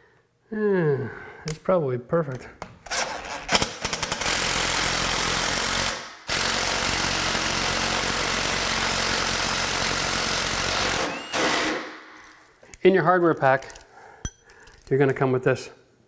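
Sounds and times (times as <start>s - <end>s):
electric drill boring into wood: 3.0s - 11.9s.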